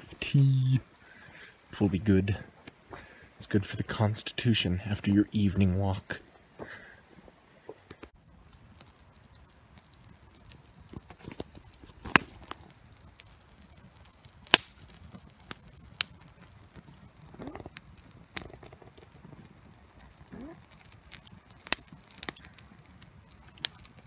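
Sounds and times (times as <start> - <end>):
campfire crackling: 0.0 - 24.0
sharp pops from fire: 7.9 - 24.0.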